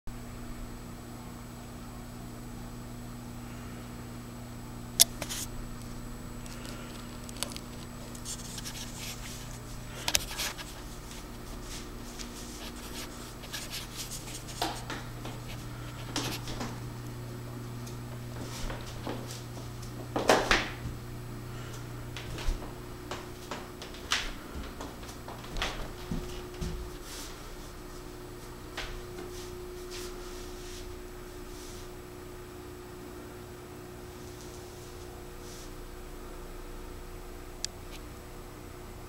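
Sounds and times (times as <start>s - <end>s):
steady low hum: 0.1s - 39.0s
footsteps on stairs: 8.3s - 17.0s, 17.7s - 21.1s, 21.8s - 30.2s.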